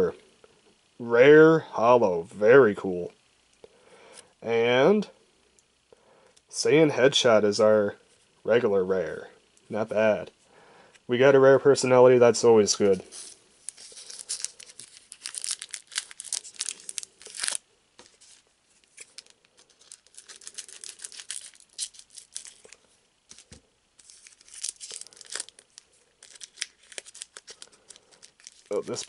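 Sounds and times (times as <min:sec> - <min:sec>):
foil wrapper tearing and crinkling: 0:13.0 - 0:29.0.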